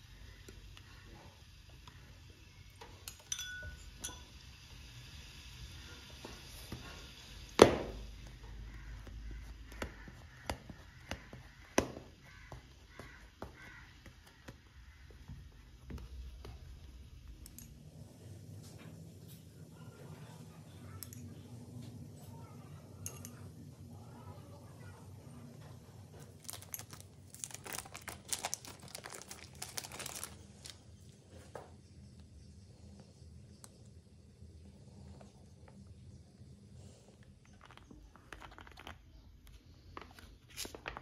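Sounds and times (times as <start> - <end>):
low steady hum: 0.0 - 40.7
spoon clinking in glass bowl: 3.0 - 4.4.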